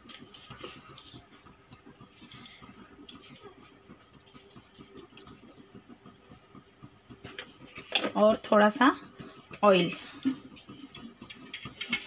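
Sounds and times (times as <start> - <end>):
spoon tapping steel bowl: 2.4 - 3.4, 4.2 - 5.4.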